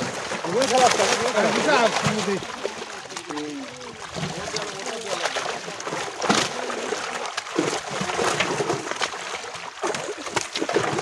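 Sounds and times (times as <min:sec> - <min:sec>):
fish splashing in net: 0:00.0 - 0:11.0.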